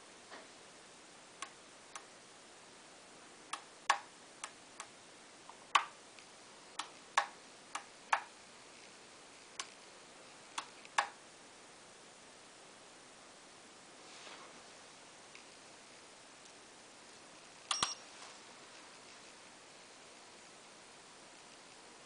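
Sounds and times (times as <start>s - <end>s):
transmitter switches clicking: 5.7s - 6.0s.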